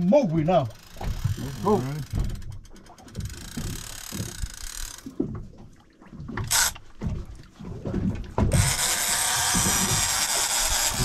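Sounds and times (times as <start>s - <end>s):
fishing reel ratcheting: 0.7s - 5.1s, 6.4s - 6.8s, 8.5s - 11.0s.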